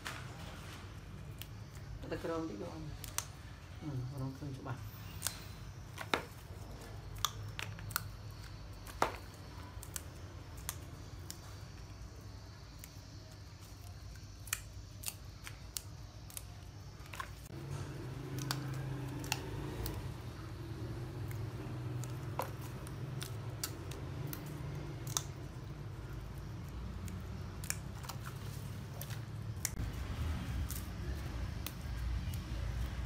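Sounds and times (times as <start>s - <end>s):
plant stems snapping: 2.9s - 3.4s, 5.0s - 11.5s, 13.8s - 20.2s, 20.9s - 33.0s.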